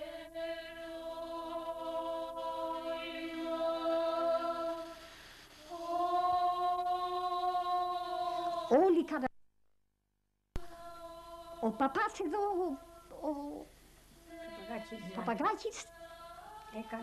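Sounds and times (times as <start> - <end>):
voices chanting long notes: 0.0 - 8.8, 10.6 - 12.0.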